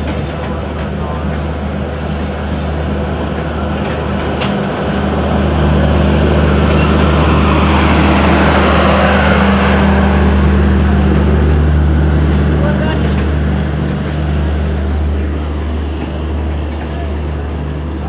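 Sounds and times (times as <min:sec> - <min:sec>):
train coaches rolling past: 0:00.0 - 0:18.0
diesel generator low drone: 0:03.5 - 0:18.0.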